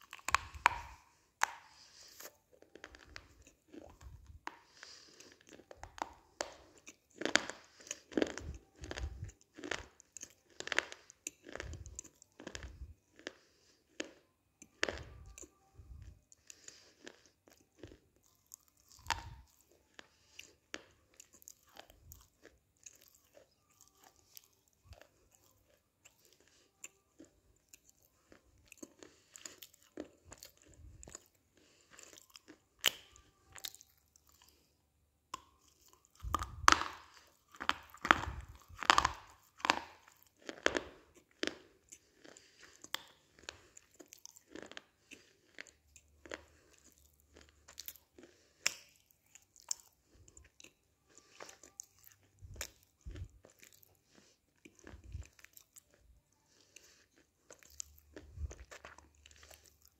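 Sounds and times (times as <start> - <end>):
crunching clay: 0.0 - 4.8, 36.1 - 41.6
chewing: 0.0 - 59.9.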